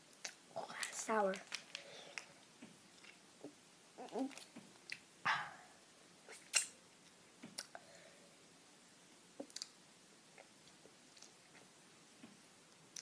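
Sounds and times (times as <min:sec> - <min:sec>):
mouth clicks and smacks: 0:00.1 - 0:05.5, 0:06.3 - 0:07.8, 0:09.4 - 0:11.7.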